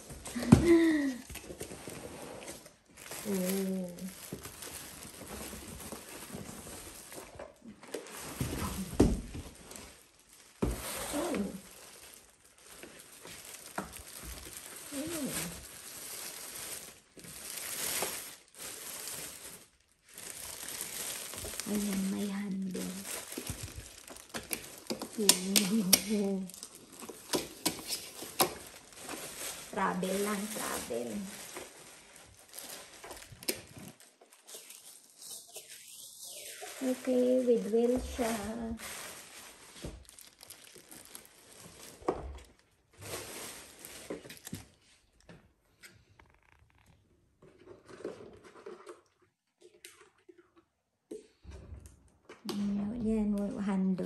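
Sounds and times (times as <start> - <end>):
plastic wrap crinkling: 0.0 - 50.4.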